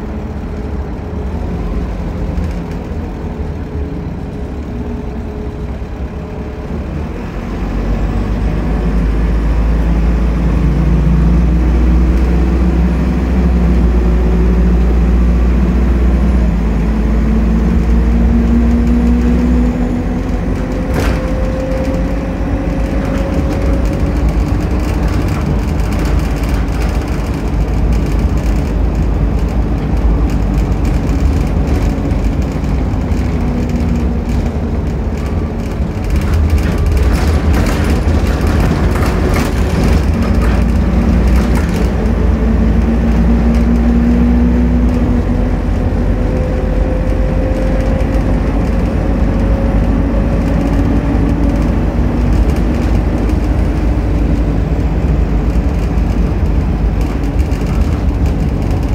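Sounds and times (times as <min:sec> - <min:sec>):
bus engine and road rumble: 0:00.0 - 0:58.9
clattering rattles of bus fittings: 0:00.1 - 0:06.8, 0:07.8 - 0:58.9.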